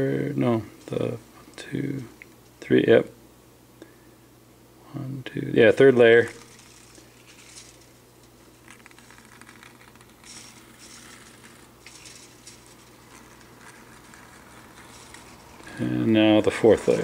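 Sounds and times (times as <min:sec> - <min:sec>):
low steady hum: 0:00.0 - 0:17.0
wire rustling and scratching: 0:05.9 - 0:17.0.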